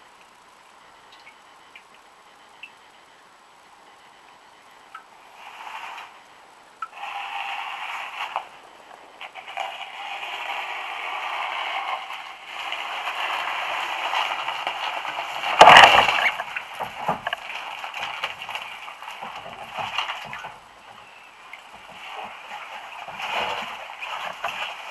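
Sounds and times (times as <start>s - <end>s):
kayak scraping against concrete: 7.0s - 24.9s.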